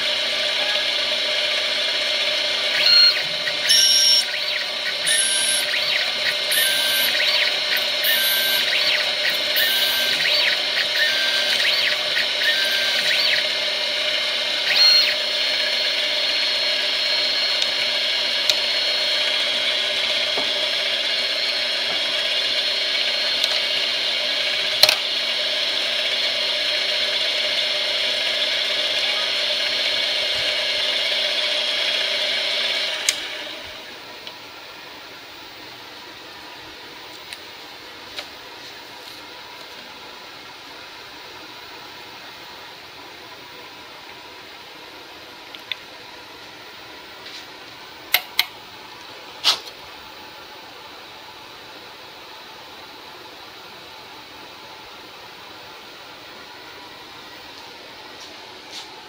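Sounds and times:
metal lathe motor whine: 0.0s - 37.8s
cutting tool squeaking: 2.7s - 17.6s.

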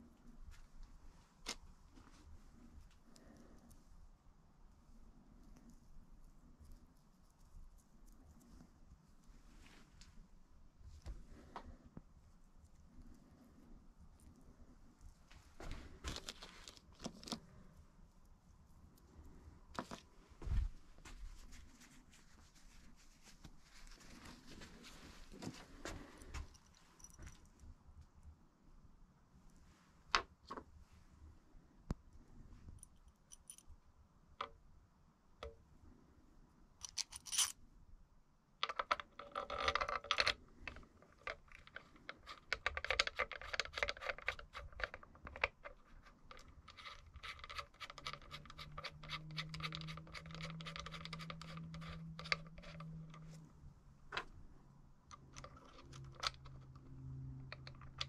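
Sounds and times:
low steady hum: 0.0s - 58.0s
small metal parts clattering: 36.8s - 37.6s.

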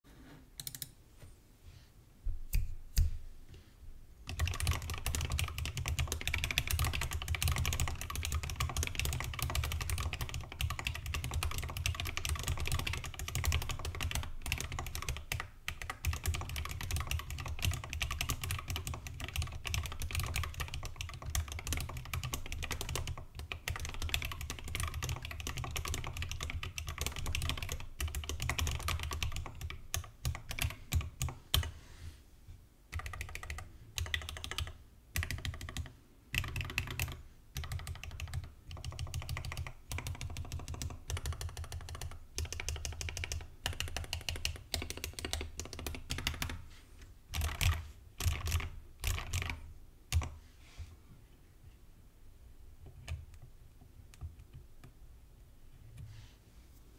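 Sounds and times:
typing on mechanical keyboard: 0.6s - 0.9s, 4.3s - 31.7s, 32.9s - 46.6s, 47.3s - 50.4s.

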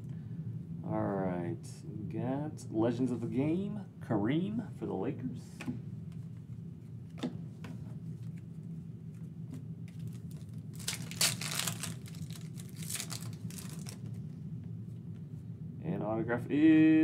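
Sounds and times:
foil pack crinkling and tearing: 9.9s - 14.2s.

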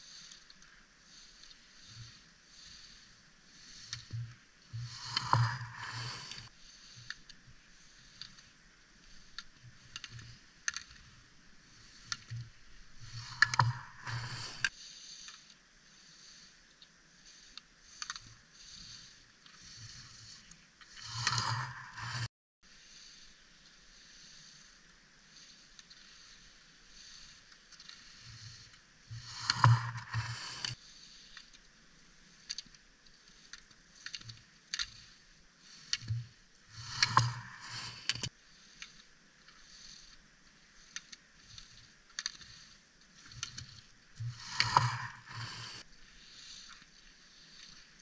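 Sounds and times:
skis scraping on snow: 4.8s - 7.0s, 21.0s - 22.3s, 29.1s - 30.8s, 44.2s - 45.8s.

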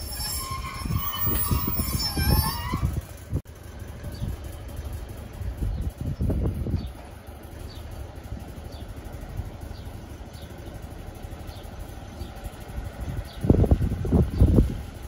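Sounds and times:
diesel train idling: 0.0s - 15.0s
wind buffeting microphone: 0.6s - 3.4s, 4.0s - 7.2s, 12.2s - 15.0s.

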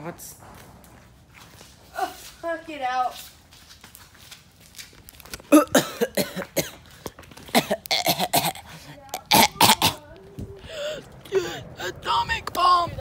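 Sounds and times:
boy coughing hard: 5.5s - 6.8s, 7.5s - 10.1s.

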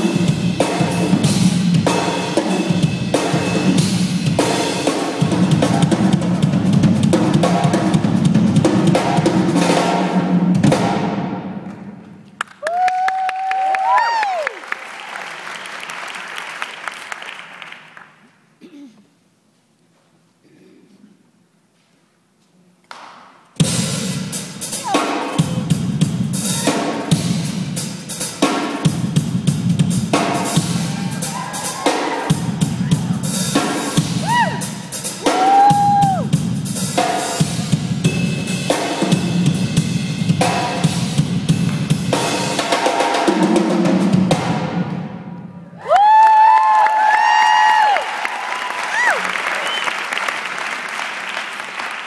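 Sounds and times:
acoustic drum kit played fast: 0.0s - 12.0s, 23.6s - 45.3s
audience whooping and cheering: 12.4s - 18.0s, 30.6s - 33.4s, 34.0s - 36.4s, 45.7s - 52.0s.

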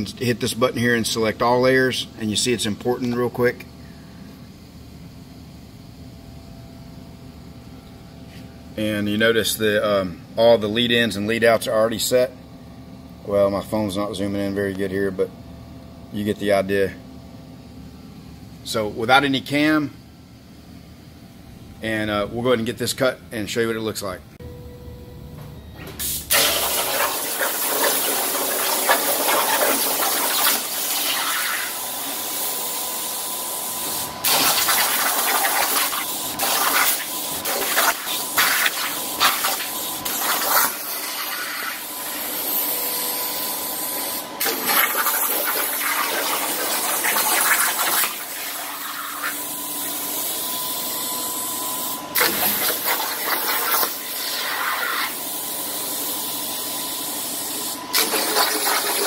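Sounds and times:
faint high whine: 21.7s - 26.2s
plasma cutter arc hissing: 26.0s - 42.7s, 43.3s - 50.5s, 51.8s - 59.0s.

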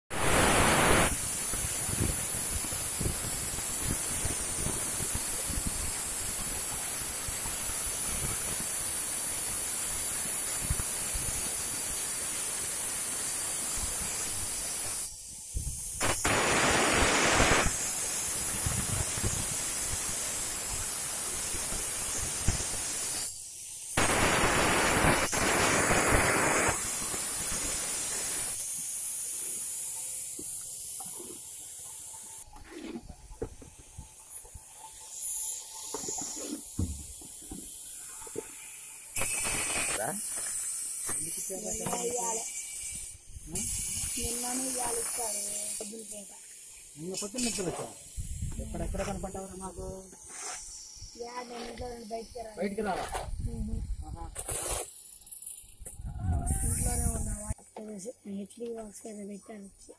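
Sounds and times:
wind on microphone: 0.2s - 6.5s, 15.5s - 17.8s, 18.4s - 20.0s, 48.2s - 50.0s, 53.1s - 54.4s, 55.8s - 57.6s.

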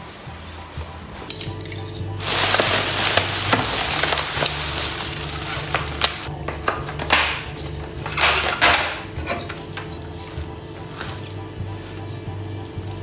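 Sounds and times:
plastic bag crinkling: 2.2s - 6.3s.

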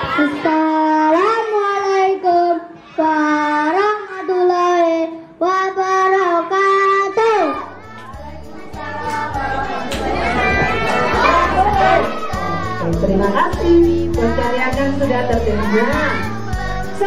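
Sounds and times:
children singing into a microphone: 5.6s - 17.0s.

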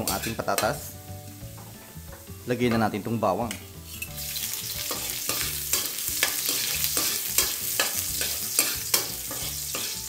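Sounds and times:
metal spatula scraping wok: 0.0s - 0.9s, 3.5s - 10.0s
potatoes sizzling in hot oil: 0.0s - 10.0s.

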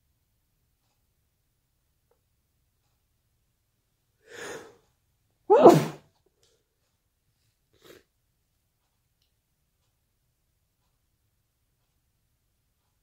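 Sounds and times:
sharp intake of breath: 4.2s - 4.8s
faint breath: 4.2s - 4.9s
person sneezing: 5.5s - 6.0s.

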